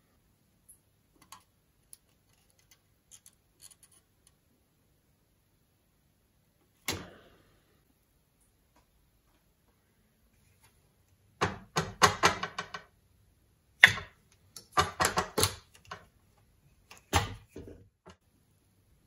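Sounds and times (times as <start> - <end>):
plastic parts clicking and rattling: 1.2 - 4.4.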